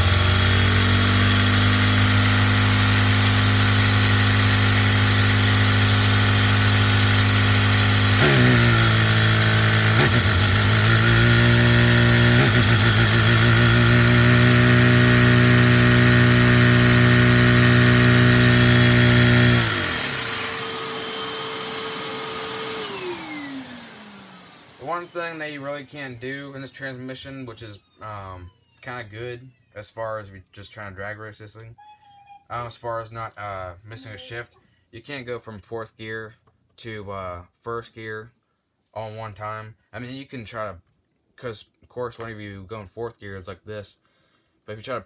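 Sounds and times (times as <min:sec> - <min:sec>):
small engine droning: 0:00.0 - 0:29.6.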